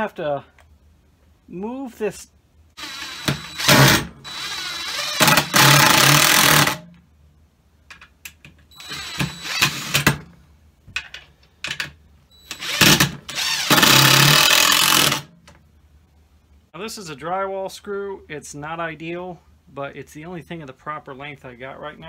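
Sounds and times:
cordless drill driving screw: 0:02.8 - 0:06.8, 0:08.8 - 0:10.2, 0:12.5 - 0:15.2.

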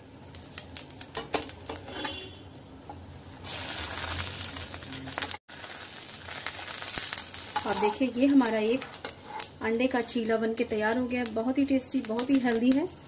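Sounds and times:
food sizzling in a pan: 0:00.0 - 0:13.0
spatula scraping a frying pan: 0:01.2 - 0:02.4, 0:07.0 - 0:08.1, 0:08.7 - 0:09.6.

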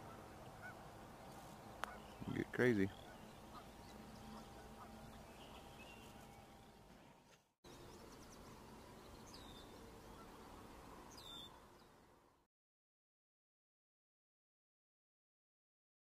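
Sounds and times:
distant bird chirps: 0:00.0 - 0:12.0.

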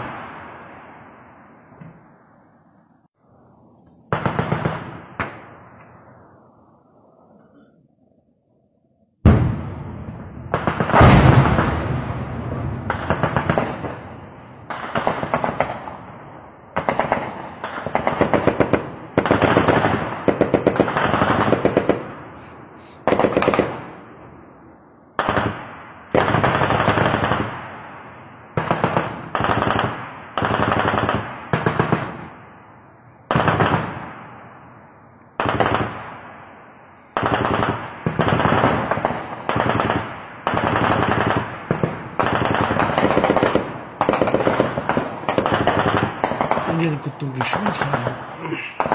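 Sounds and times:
automatic weapons firing in bursts: 0:10.5 - 0:14.0, 0:14.7 - 0:16.0, 0:16.7 - 0:22.2, 0:23.0 - 0:23.9, 0:25.2 - 0:27.7, 0:28.6 - 0:32.3, 0:35.4 - 0:36.1, 0:37.2 - 0:46.7.

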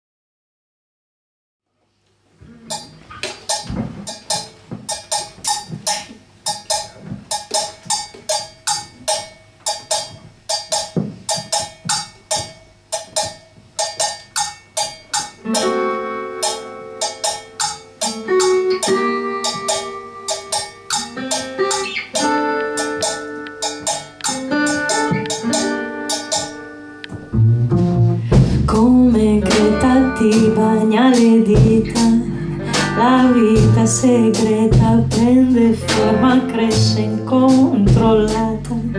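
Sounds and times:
drums: 0:02.4 - 0:38.9
upright double bass: 0:27.2 - 0:38.9.

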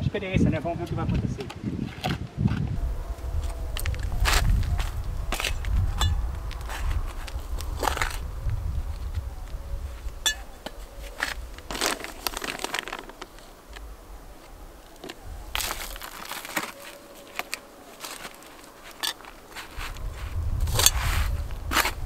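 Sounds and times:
plastic sack crinkling: 0:11.0 - 0:13.8, 0:15.0 - 0:20.3.

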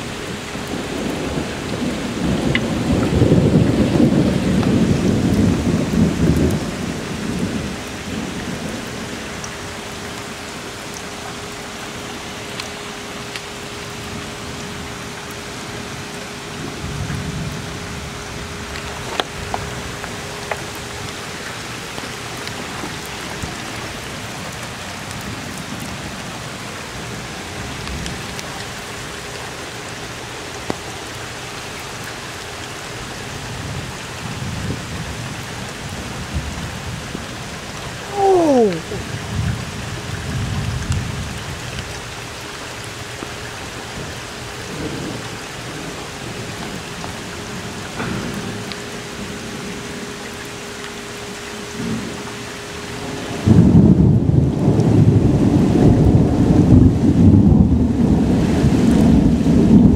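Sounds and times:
thunder rumbling: 0:00.0 - 0:28.6, 0:52.9 - 0:59.9
heavy rain: 0:00.0 - 0:59.9.

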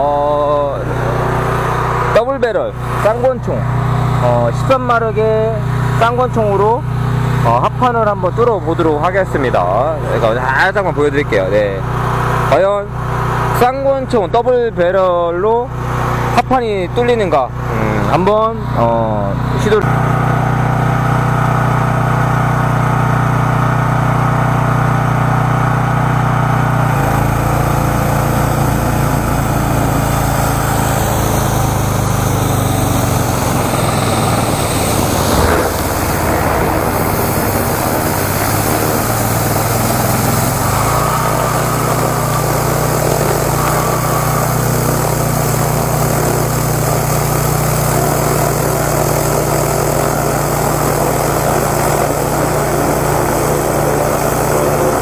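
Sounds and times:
pressure washer engine running: 0:00.0 - 0:55.0
water jet spraying on wood: 0:00.7 - 0:12.5, 0:26.7 - 0:55.0.

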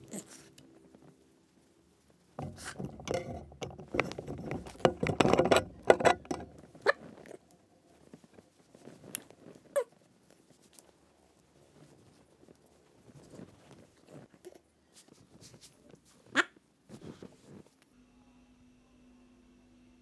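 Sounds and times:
fabric rustling and scuffling: 0:03.8 - 0:17.9.

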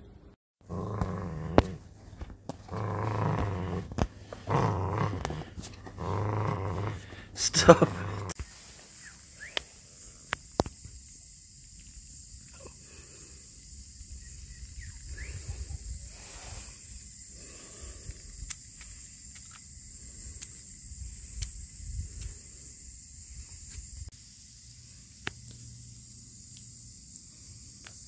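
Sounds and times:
steady high-pitched hiss: 0:02.8 - 0:28.0
wind rumbling on microphone: 0:13.8 - 0:18.9, 0:20.2 - 0:24.1.

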